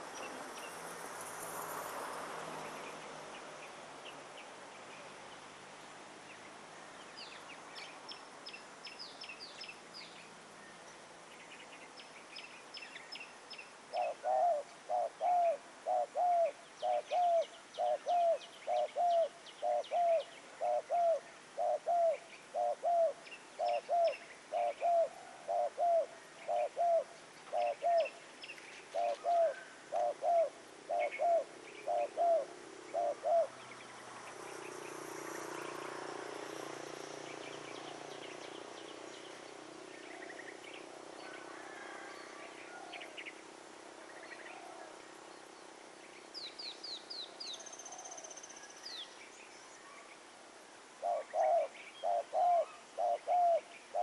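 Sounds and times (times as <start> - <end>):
small birds chirping: 0.0 - 50.4, 51.0 - 54.0
dove cooing: 13.9 - 28.2, 28.9 - 33.6, 41.3 - 43.0, 51.0 - 54.0.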